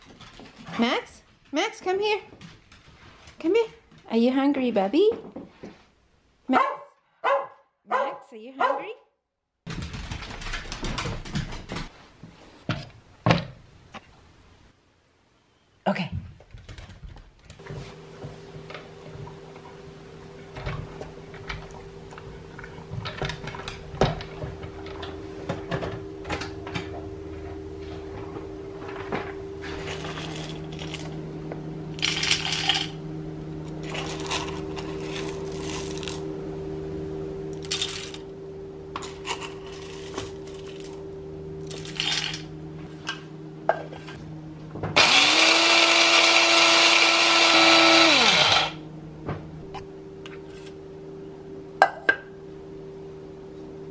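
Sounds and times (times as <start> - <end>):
coffee grinder motor whine: 20.3 - 36.6, 38.9 - 41.0, 44.9 - 48.8
coffee beans rattling: 29.9 - 31.2, 32.0 - 33.0, 33.8 - 36.2, 37.6 - 38.2, 39.0 - 41.0, 41.6 - 42.4.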